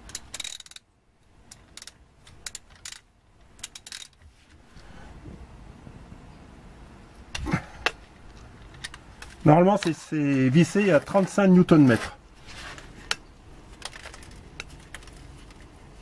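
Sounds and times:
ratchet wrench clicking: 0.0s - 4.2s
faint background hum: 0.0s - 16.0s.

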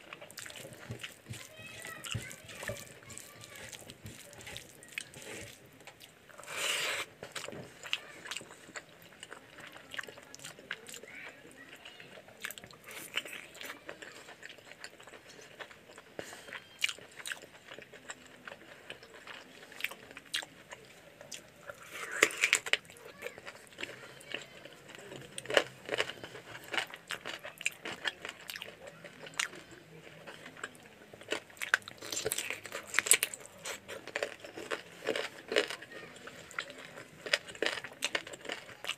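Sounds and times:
wet chewing: 0.0s - 38.9s
fingers squishing rice: 0.1s - 20.6s.

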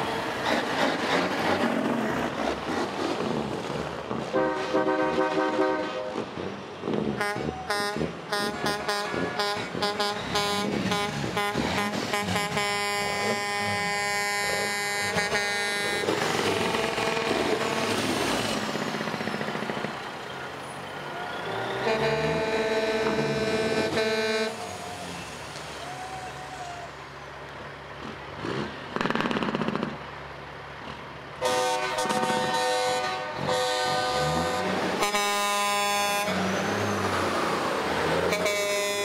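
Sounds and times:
trucks rolling past: 0.0s - 39.0s
truck air horn blasts: 4.3s - 6.3s, 7.2s - 18.0s, 21.7s - 24.8s, 31.4s - 36.5s, 38.2s - 39.0s.

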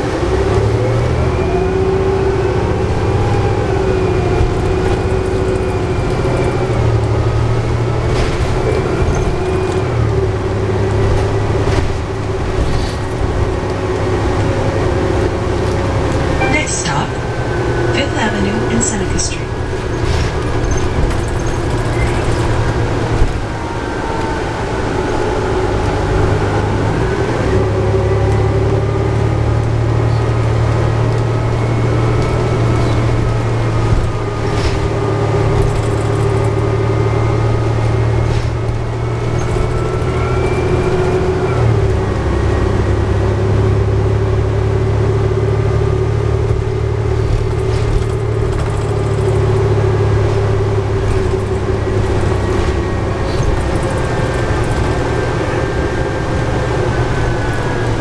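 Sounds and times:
bus engine low drone: 0.0s - 58.0s
transmission whine: 16.3s - 19.7s.

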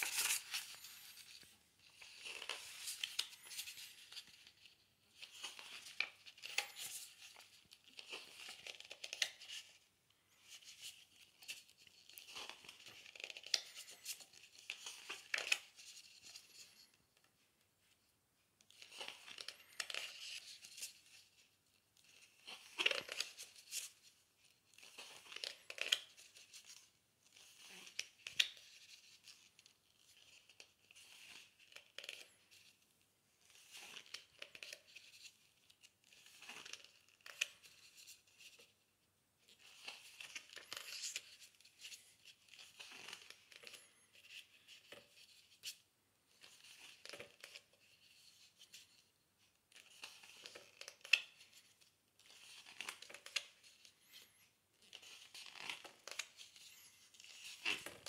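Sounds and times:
book pages being turned: 0.0s - 18.0s, 18.6s - 32.8s, 33.4s - 58.0s.

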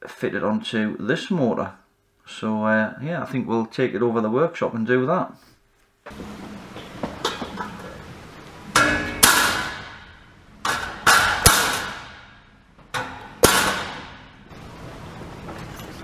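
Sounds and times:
hammer striking metal: 6.7s - 14.5s.

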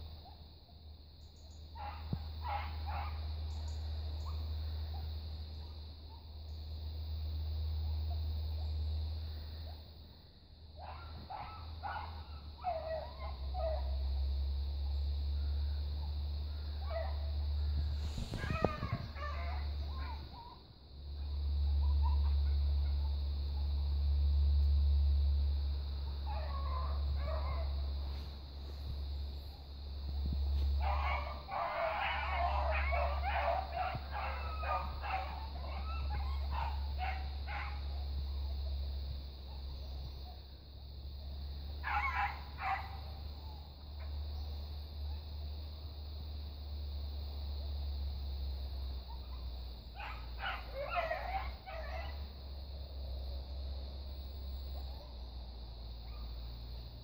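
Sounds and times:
dogs yelping barks: 1.8s - 3.3s, 10.8s - 14.0s, 18.3s - 20.6s, 21.8s - 23.1s, 26.3s - 28.2s, 30.8s - 38.0s, 41.8s - 43.2s, 50.0s - 52.3s
steady low rumble: 13.8s - 41.6s.

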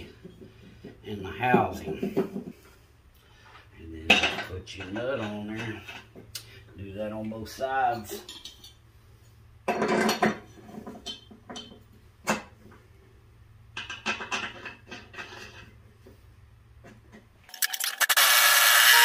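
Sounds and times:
air impact wrench: 17.6s - 19.0s.

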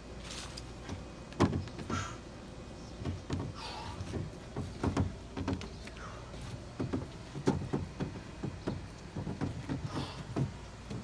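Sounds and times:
plastic bars knocking on wooden deck: 3.0s - 5.7s, 6.8s - 11.0s.

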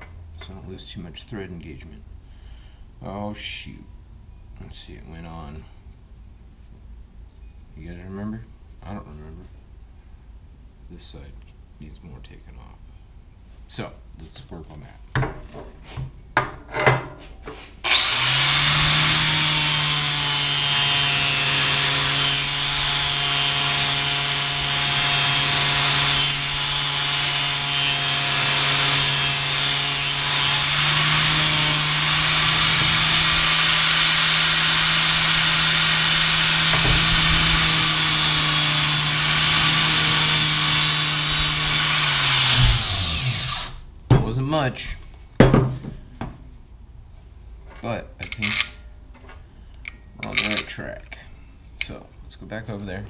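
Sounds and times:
angle grinder grinding metal: 17.8s - 43.8s.

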